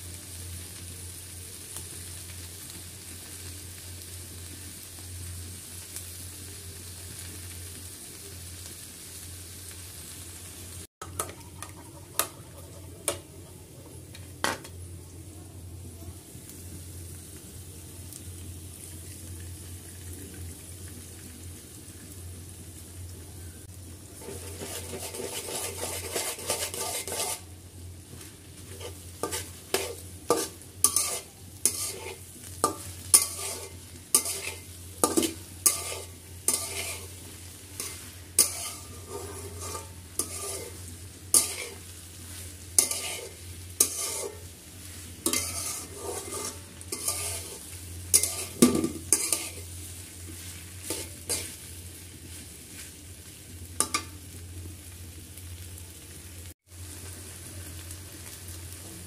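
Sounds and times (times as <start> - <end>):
oil sizzling: 0.0 - 59.0
metal spatula scraping a pan: 24.2 - 27.5, 28.6 - 51.7.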